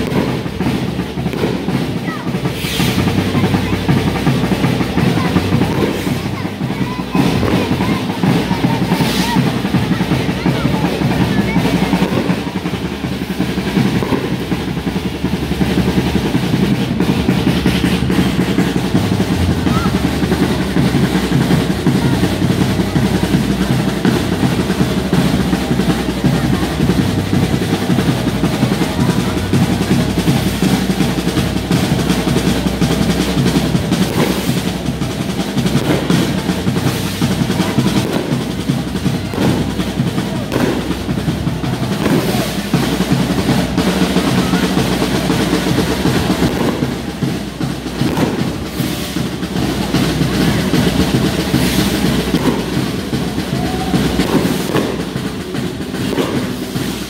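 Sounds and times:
snare and bass drums rolling beat: 0:00.0 - 0:57.0.

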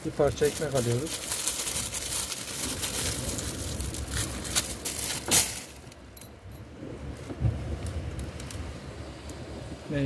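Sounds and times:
plastic bag crinkling: 0:00.1 - 0:05.9.

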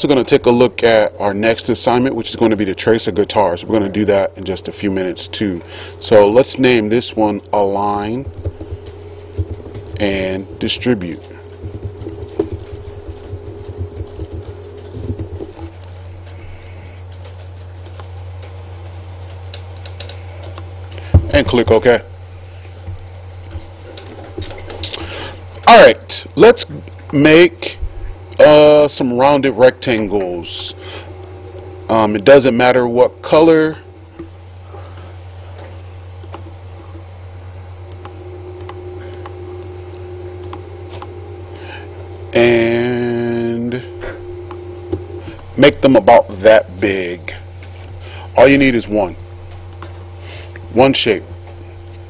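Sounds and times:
steady low hum: 0:00.0 - 0:52.0
computer keyboard clicking: 0:08.2 - 0:10.9, 0:11.5 - 0:16.6, 0:36.2 - 0:36.4, 0:40.4 - 0:41.1
computer mouse clicks: 0:36.2 - 0:36.4, 0:40.4 - 0:41.1.

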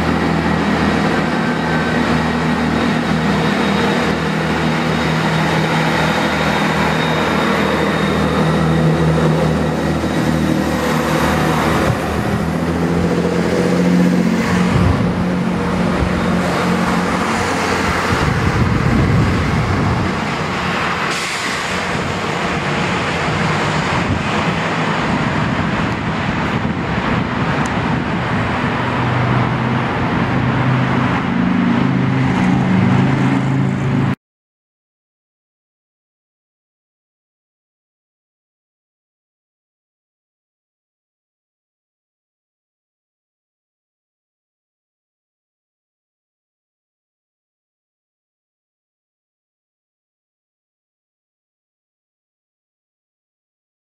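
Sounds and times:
diesel train engines droning: 0:00.0 - 0:34.2.

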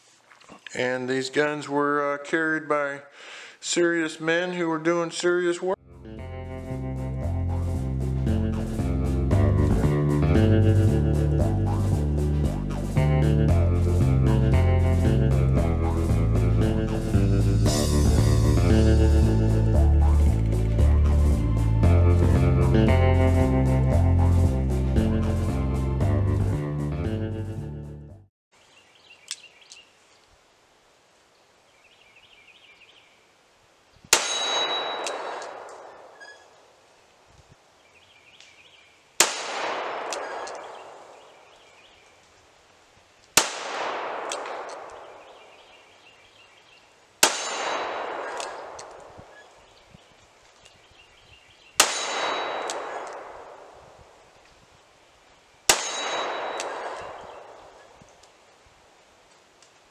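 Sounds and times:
revolver shots with echo: 0:34.2 - 0:36.2, 0:39.2 - 0:41.0, 0:47.2 - 0:49.4, 0:51.8 - 0:53.7, 0:55.7 - 0:57.8.

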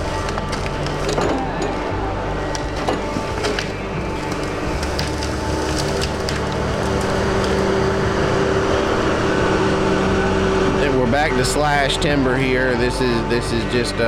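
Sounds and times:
branches snapping and splintering: 0:00.0 - 0:08.8
loader engine hum: 0:00.0 - 0:14.0.

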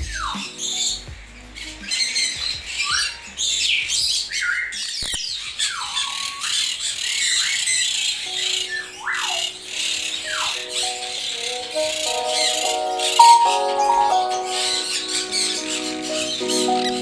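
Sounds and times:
conures screeching: 0:01.9 - 0:12.9.

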